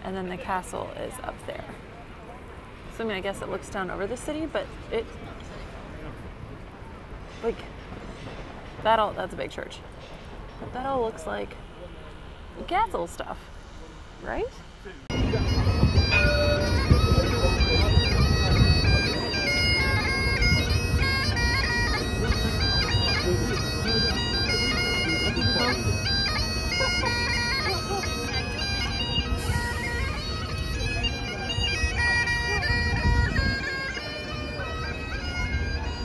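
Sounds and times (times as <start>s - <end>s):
bagpipes playing melody: 15.1s - 36.0s.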